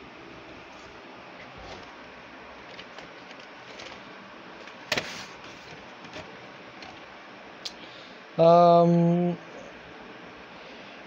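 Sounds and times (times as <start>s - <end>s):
low steady hiss: 0.0s - 11.0s
plastic tape cases ticking: 2.6s - 4.0s, 5.6s - 7.1s.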